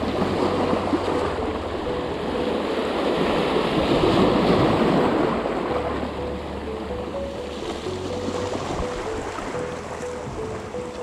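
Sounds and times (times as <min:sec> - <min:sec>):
waves breaking on rocks: 0:00.0 - 0:06.6.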